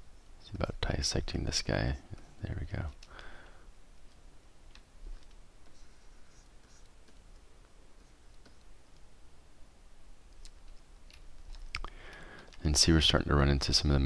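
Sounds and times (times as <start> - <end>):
low room noise: 0.0 - 14.0.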